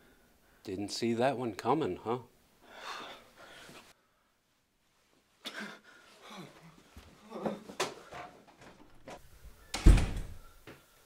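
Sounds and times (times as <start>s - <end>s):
man breathing: 2.6s - 4.5s, 9.2s - 11.0s
door banging: 9.7s - 10.4s.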